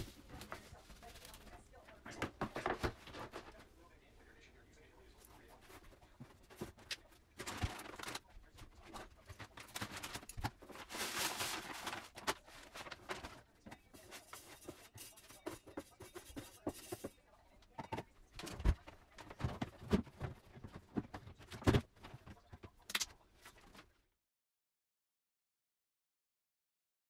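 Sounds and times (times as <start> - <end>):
liner rustling: 5.5 - 15.0
cat litter pouring: 8.9 - 14.9.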